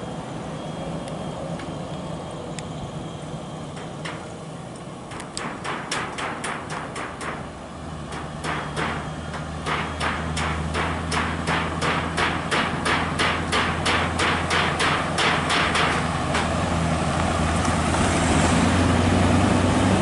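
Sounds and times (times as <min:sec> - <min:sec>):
truck engine rumbling: 0:00.0 - 0:20.0
rapid sharp knocks: 0:05.1 - 0:07.5, 0:08.1 - 0:16.5.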